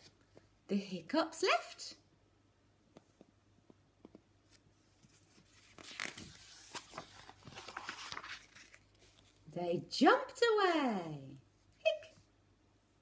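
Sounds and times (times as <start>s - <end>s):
paper pages rustling: 4.4s - 9.5s.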